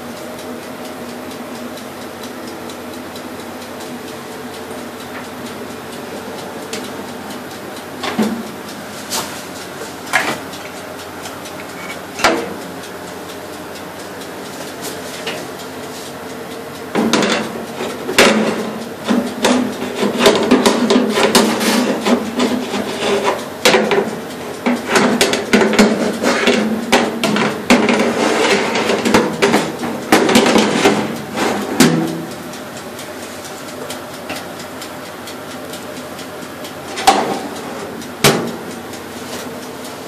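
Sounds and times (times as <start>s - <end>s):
metal baking trays clattering: 10.1s - 10.4s, 17.0s - 32.3s, 36.9s - 38.6s.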